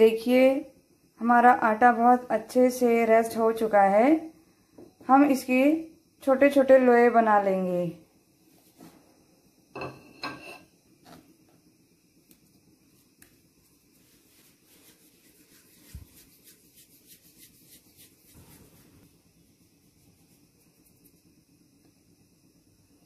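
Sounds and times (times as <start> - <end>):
hands rubbing and patting dough: 12.2 - 21.5.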